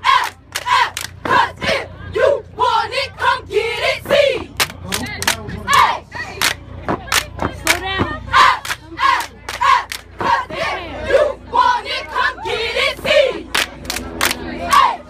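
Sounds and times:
cheerleaders shouting a chant: 0.0 - 4.6, 7.4 - 13.5, 14.4 - 15.0.

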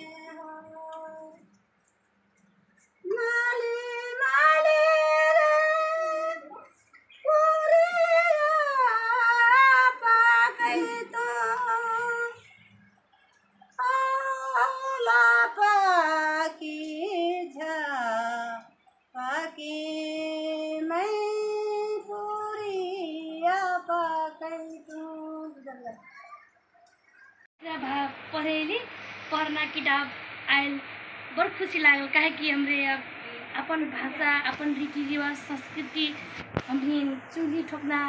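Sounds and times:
woman singing unaccompanied: 0.0 - 1.6, 3.0 - 12.6, 13.7 - 26.0, 34.1 - 38.0.

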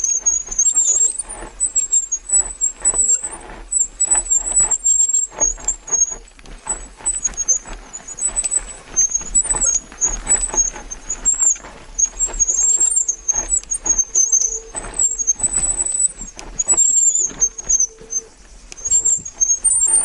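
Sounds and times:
bicycle brakes squealing: 0.0 - 20.0
bicycle rattling on rough track: 0.0 - 20.0.

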